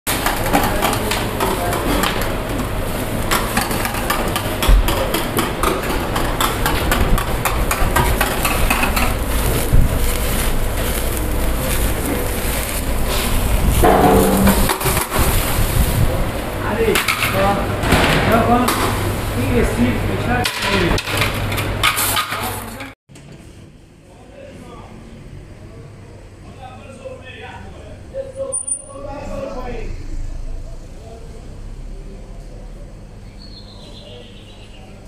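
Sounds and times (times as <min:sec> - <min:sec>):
metal skewers knocking on grill: 0:03.3 - 0:09.2, 0:13.7 - 0:15.3
flames crackling over coals: 0:06.4 - 0:16.6.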